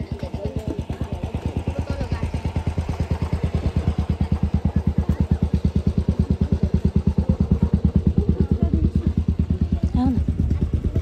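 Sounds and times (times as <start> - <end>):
low mechanical throbbing: 0.0 - 11.0.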